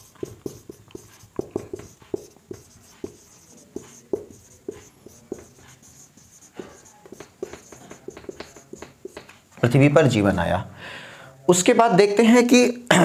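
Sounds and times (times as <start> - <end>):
marker writing on a whiteboard: 0.0 - 9.8.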